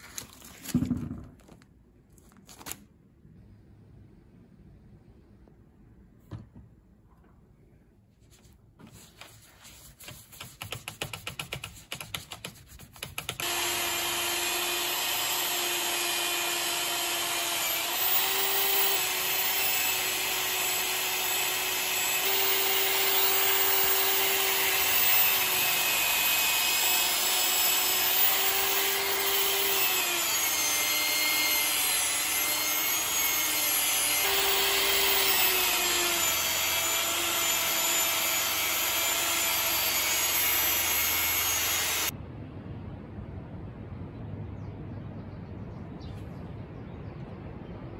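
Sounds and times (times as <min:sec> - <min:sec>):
hand rubbing compound on pad: 0:08.2 - 0:13.4
power tool spinning: 0:13.4 - 0:42.1.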